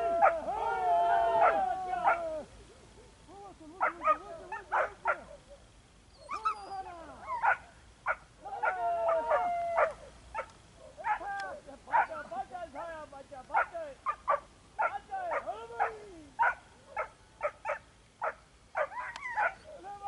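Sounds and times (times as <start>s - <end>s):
dogs whining and yelping: 4.0s - 7.6s, 18.8s - 19.7s.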